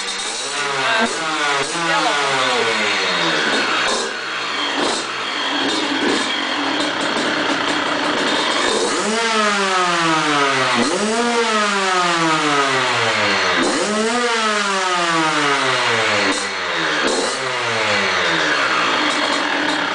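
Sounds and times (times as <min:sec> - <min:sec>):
two-stroke engine revving: 0:00.0 - 0:19.9.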